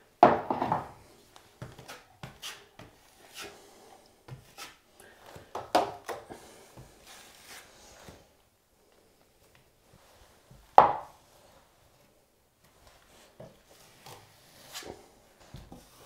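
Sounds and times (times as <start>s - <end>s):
taping knife scraping compound: 1.7s - 3.7s, 4.3s - 4.8s, 13.9s - 15.0s.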